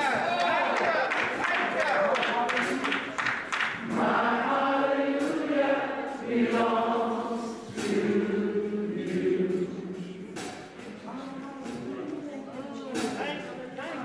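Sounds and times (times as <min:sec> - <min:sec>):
church choir singing: 0:00.0 - 0:11.0.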